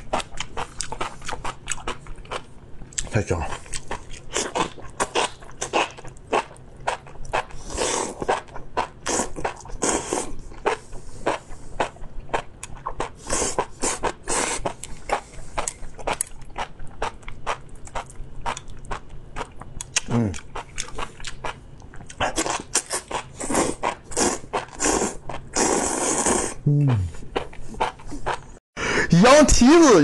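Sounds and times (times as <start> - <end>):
wet smacking and chewing: 15.6 - 23.3
slurping: 22.3 - 27.2.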